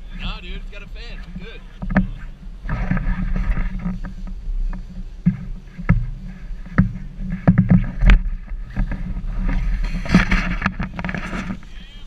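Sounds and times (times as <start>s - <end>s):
low wind rumble: 0.0s - 12.0s
camera handling knocks and rustles: 1.2s - 11.6s.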